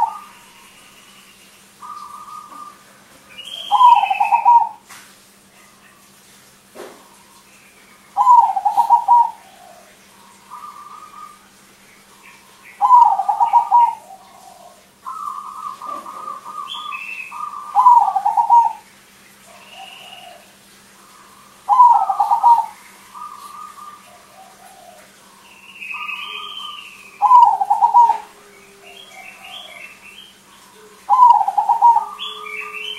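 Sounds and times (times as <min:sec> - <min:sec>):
dove rolling coo: 0:00.0 - 0:00.6, 0:01.8 - 0:04.8, 0:08.2 - 0:11.6, 0:12.8 - 0:18.9, 0:19.5 - 0:32.9
soft dove cooing: 0:00.0 - 0:00.9, 0:01.8 - 0:04.9, 0:08.2 - 0:11.6, 0:12.3 - 0:32.9.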